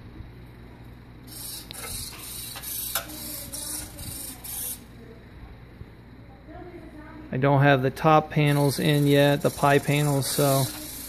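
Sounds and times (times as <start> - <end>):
servos whirring: 1.2 - 5.1, 8.4 - 11.0.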